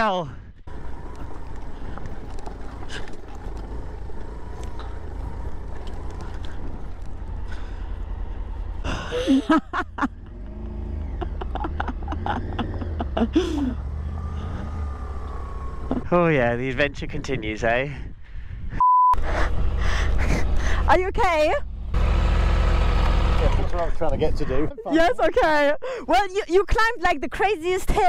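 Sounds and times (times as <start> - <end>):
motorcycle engine low rumble: 0.3 - 24.7.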